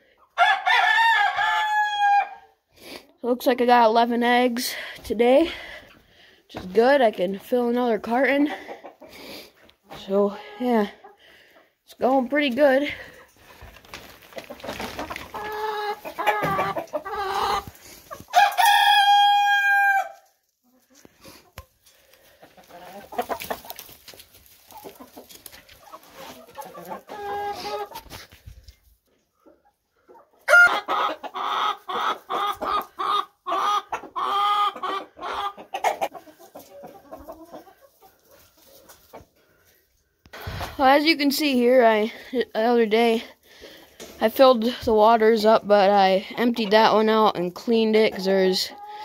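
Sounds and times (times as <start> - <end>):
long steady chicken call: 0.0 - 2.6, 15.0 - 20.3, 24.7 - 28.0, 29.4 - 40.2
chickens clucking and squawking: 0.0 - 3.2, 4.6 - 6.5, 7.5 - 42.7, 43.3 - 49.0.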